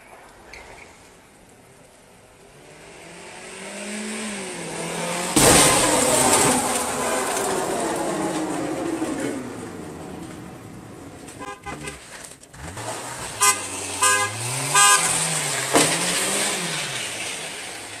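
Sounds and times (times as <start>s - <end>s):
car engine revving: 2.2s - 18.0s
car horn toots: 11.3s - 12.2s, 13.3s - 16.1s.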